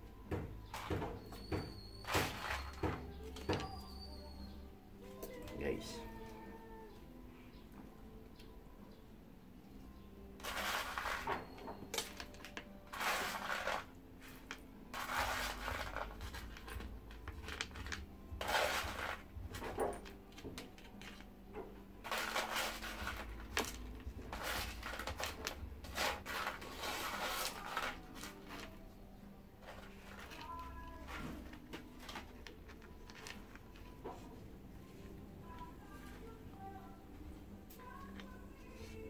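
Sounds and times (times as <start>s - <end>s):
pebbles rattling and scraping: 10.4s - 21.2s, 22.0s - 28.7s.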